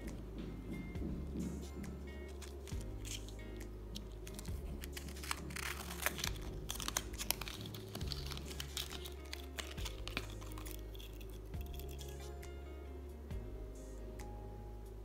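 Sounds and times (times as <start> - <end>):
background music: 0.0 - 15.0
cardboard crinkling: 2.3 - 12.3.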